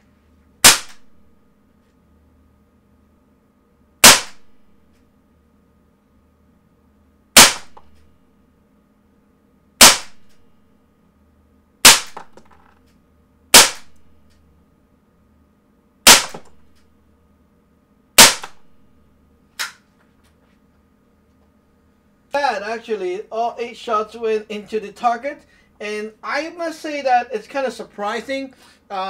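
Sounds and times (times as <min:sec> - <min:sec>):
air pistol pops: 0:00.6 - 0:01.1, 0:04.0 - 0:04.4, 0:11.8 - 0:12.4, 0:13.6 - 0:14.0, 0:16.1 - 0:16.6, 0:18.2 - 0:18.6.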